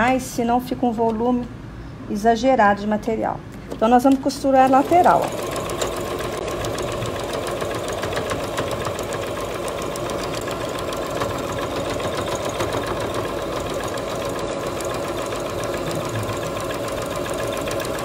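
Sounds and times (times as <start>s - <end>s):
sewing machine running: 4.3s - 18.0s.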